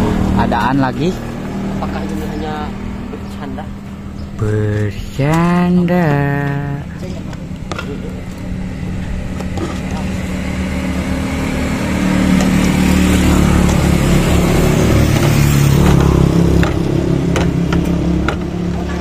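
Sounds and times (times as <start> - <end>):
vehicle engine humming: 0.0 - 19.0.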